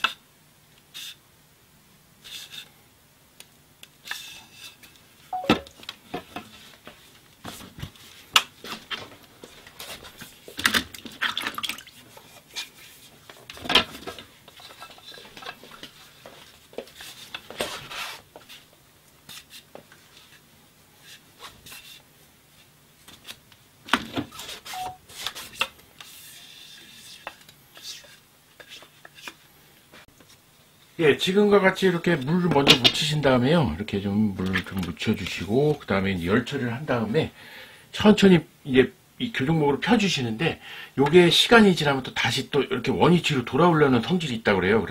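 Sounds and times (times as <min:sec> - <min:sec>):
bamboo rubbing: 0:24.4 - 0:29.4.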